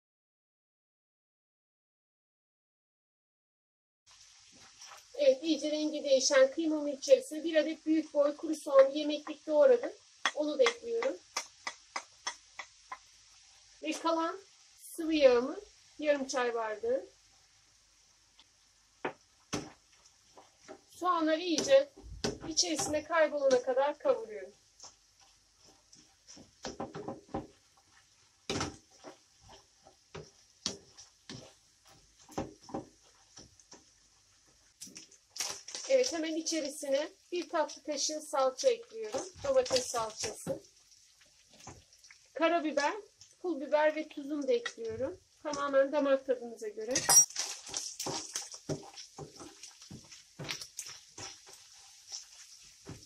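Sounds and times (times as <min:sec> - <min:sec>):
wooden spoon scraping a pan: 0:04.1 - 0:05.2, 0:18.4 - 0:43.4, 0:46.9 - 0:53.0
faint frying hiss: 0:04.1 - 0:53.0.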